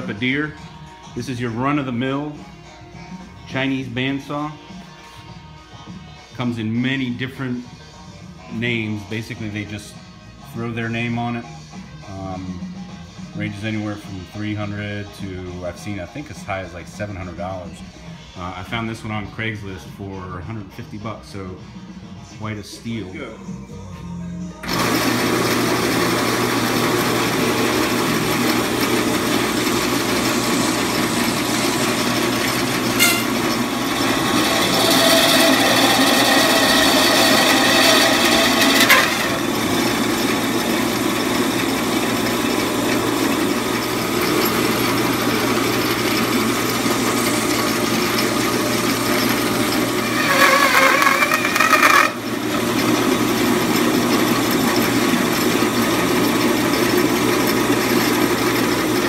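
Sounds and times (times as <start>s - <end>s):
band saw cutting meat: 24.6s - 59.0s.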